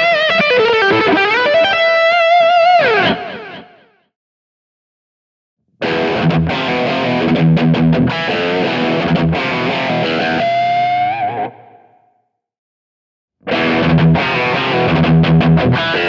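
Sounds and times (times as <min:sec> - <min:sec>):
electric guitar phrase: 0:00.0 - 0:03.8, 0:05.8 - 0:12.2, 0:13.4 - 0:16.0.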